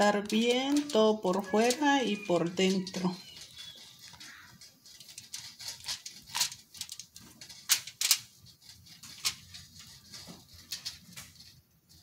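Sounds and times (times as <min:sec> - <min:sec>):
aluminium foil crinkling: 0:00.0 - 0:12.0.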